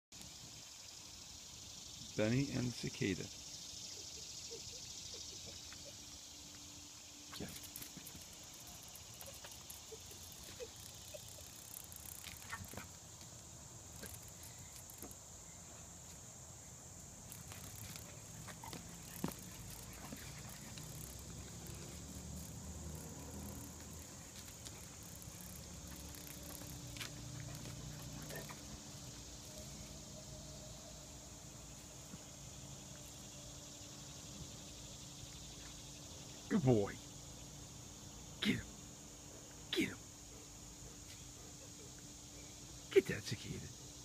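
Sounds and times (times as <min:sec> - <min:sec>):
steady high hiss: 0:00.2 - 0:44.0
dog paws scuffing on pavers: 0:17.3 - 0:22.2.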